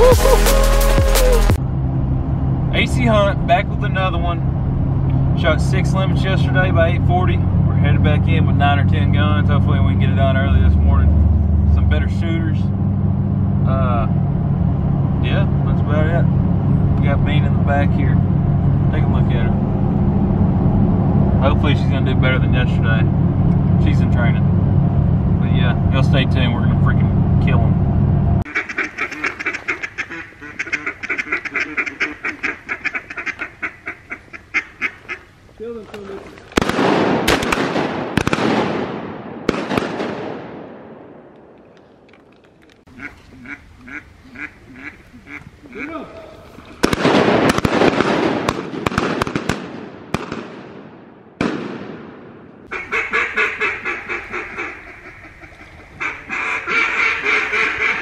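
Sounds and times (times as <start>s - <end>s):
vehicle engine rumble: 0.0s - 58.0s
ducks quacking: 28.5s - 35.4s, 42.9s - 46.6s, 52.7s - 58.0s
shotgun shots echoing: 36.5s - 42.1s, 46.8s - 52.7s.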